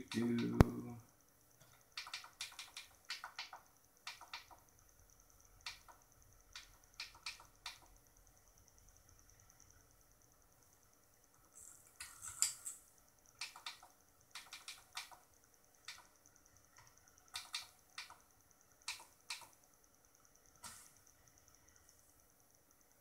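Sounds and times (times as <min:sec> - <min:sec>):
faint high-pitched whine: 0:00.0 - 0:23.0.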